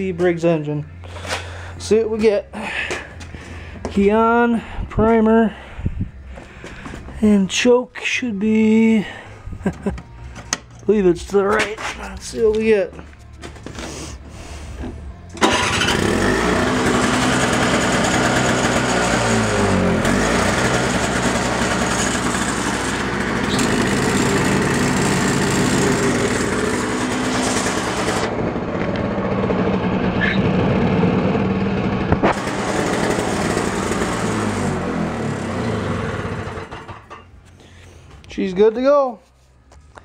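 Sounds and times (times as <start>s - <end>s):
snowblower engine running: 15.4s - 37.2s.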